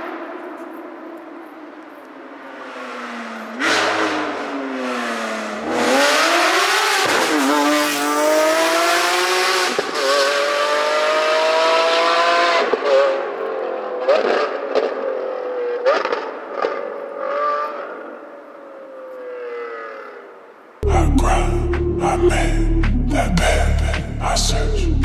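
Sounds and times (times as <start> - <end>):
sports car engine accelerating hard: 2.5 - 18.2.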